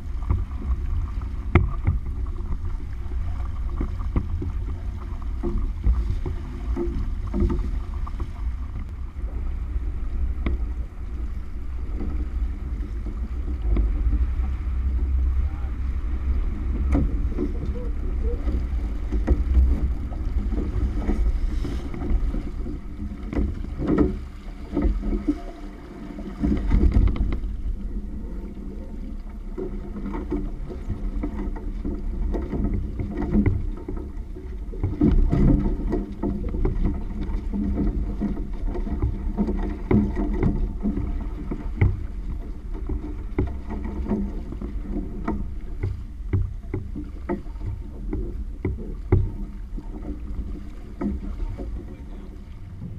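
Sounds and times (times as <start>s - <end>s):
water splashing along hull: 0.0s - 52.9s
wind rumble on microphone: 0.0s - 52.9s.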